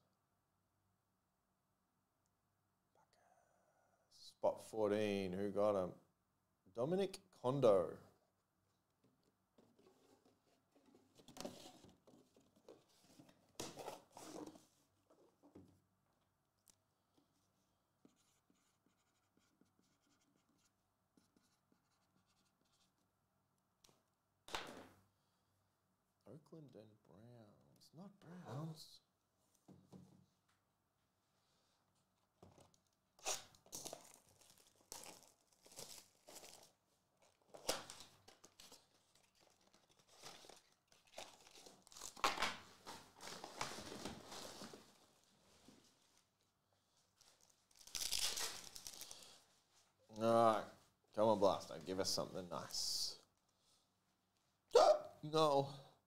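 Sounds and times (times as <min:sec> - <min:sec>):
foil wrappers crinkling: 0:33.7 - 0:36.8, 0:47.2 - 0:49.4.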